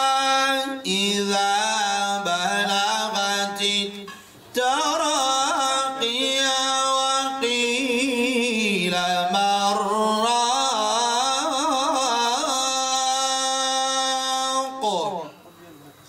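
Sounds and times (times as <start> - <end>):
man chanting melodically into microphone: 0.0 - 15.6.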